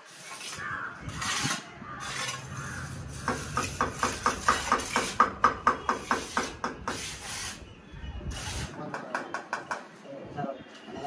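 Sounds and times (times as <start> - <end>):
trowel scraping plaster: 0.0 - 5.3, 6.0 - 7.6, 8.3 - 8.8.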